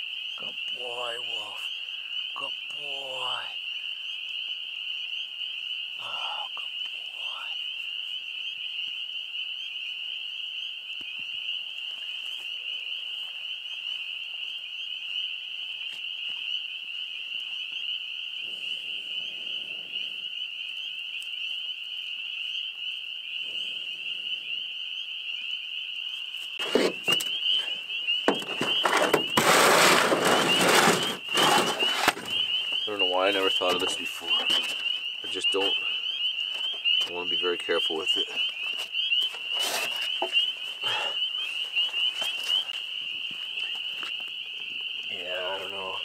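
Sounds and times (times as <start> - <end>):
frogs peeping: 0.0 - 46.0
loud rustling: 28.3 - 32.6.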